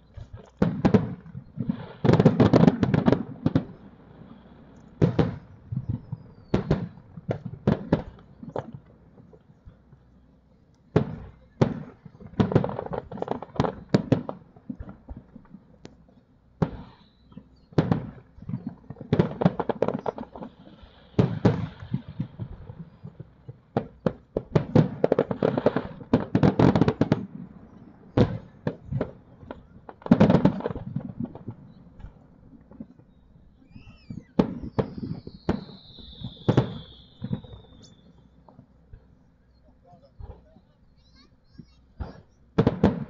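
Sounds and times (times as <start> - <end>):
fireworks bursting: 0.0 - 43.0.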